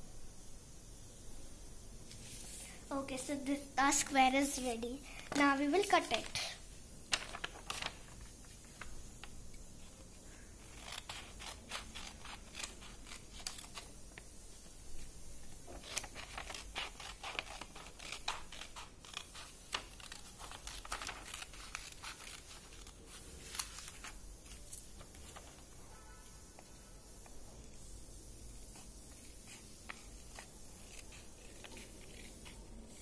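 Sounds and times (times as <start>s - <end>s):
scissors snipping paper: 10.6s - 14.2s, 15.6s - 24.9s, 28.8s - 33.0s.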